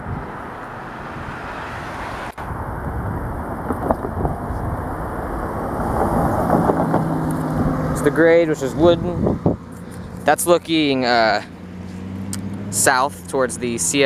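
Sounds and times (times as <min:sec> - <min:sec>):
road traffic passing: 0:00.0 - 0:14.0.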